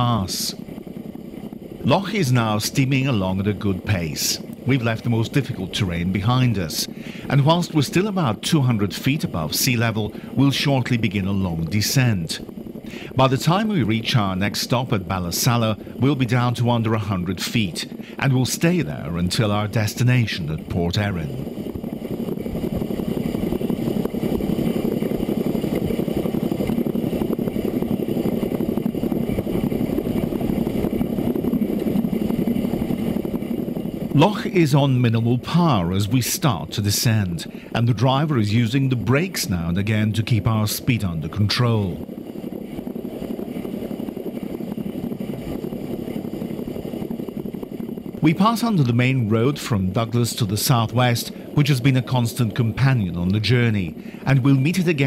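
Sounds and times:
steam locomotive exhaust beats: 1.5 - 42.1.

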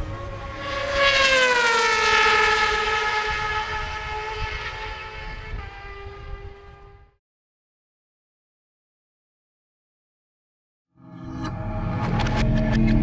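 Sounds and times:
motorcycle passing at speed: 0.0 - 7.2.

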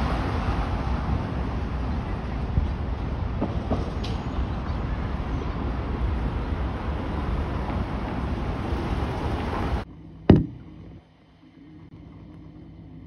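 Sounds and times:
traffic rumble: 0.0 - 13.0
loud knock: 10.3 - 10.7.

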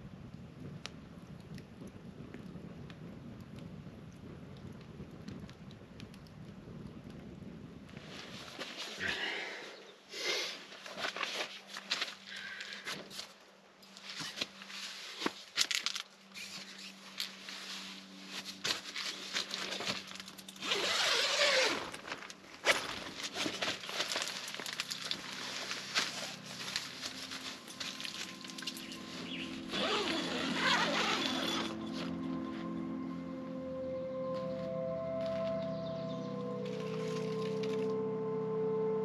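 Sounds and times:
tent fabric rustling: 8.0 - 9.1, 10.5 - 32.9
zipper pulled: 20.6 - 23.9, 29.3 - 32.1.

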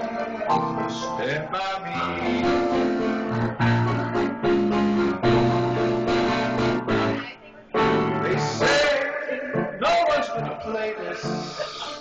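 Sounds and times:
piano playing slow chords: 0.0 - 12.0.

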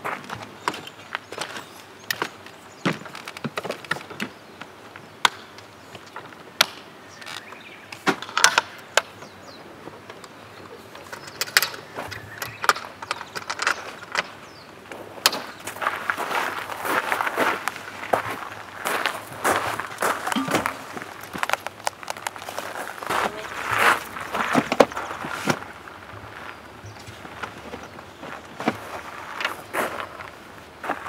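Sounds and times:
tent folding clicks and knocks: 5.2 - 9.3, 11.0 - 14.4, 19.8 - 22.6.

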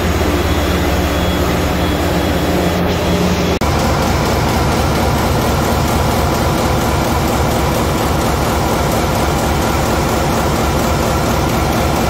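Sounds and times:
diesel engine throbbing: 0.0 - 12.0.

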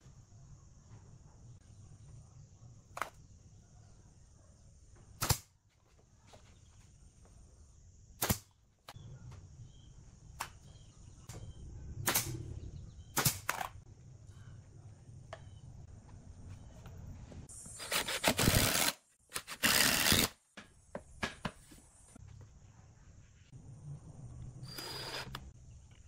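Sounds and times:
pneumatic nail gun firing: 8.2 - 8.5, 17.7 - 20.4.

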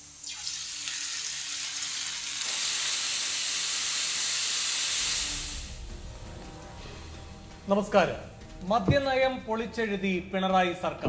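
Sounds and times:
fish sizzling in frying pan: 0.0 - 5.8.

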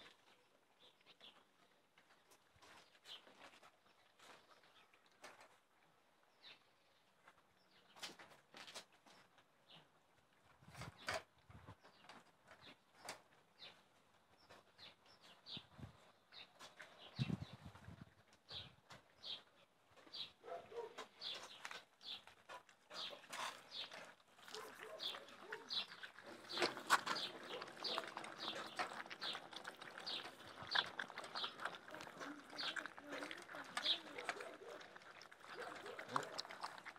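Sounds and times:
puppies chewing: 18.2 - 36.9
teeth clinking on metal bowls: 22.9 - 36.9.

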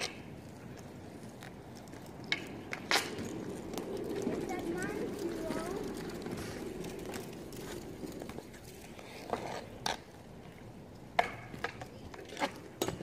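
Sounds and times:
skate wheels rolling on asphalt: 0.0 - 13.0
hockey stick clacks: 11.1 - 13.0.

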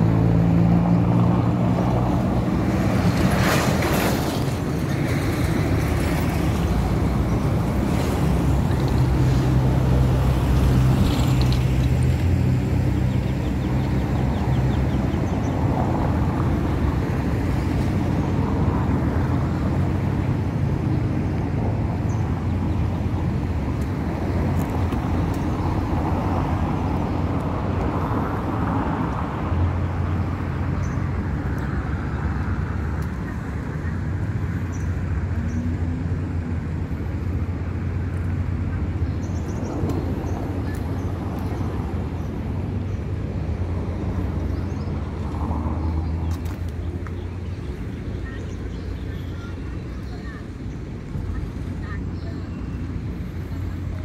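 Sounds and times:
rush of traffic noise: 0.0 - 54.0
vehicle engines humming: 0.0 - 54.0.

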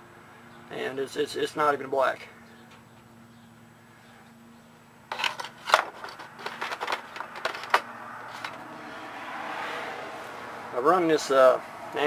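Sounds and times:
sharp handling clicks and scrapes: 5.1 - 8.6.

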